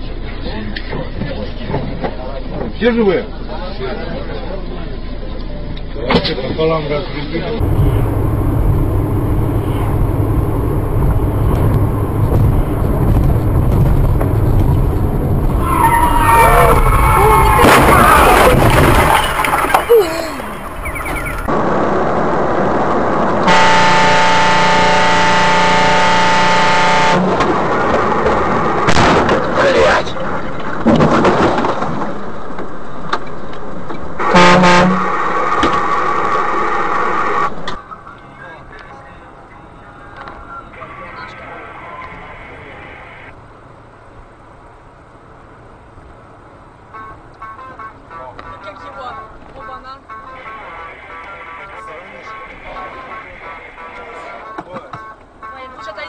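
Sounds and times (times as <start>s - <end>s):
car road and engine rumble: 0.0s - 56.0s
truck horn blast: 23.4s - 27.5s, 34.2s - 35.2s, 46.9s - 49.3s
loud pitched tone: 23.5s - 27.3s, 34.2s - 35.6s.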